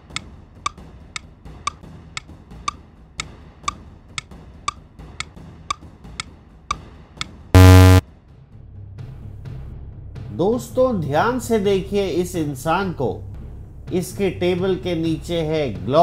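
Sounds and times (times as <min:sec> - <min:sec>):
loud short buzzer: 0:07.6 - 0:08.0.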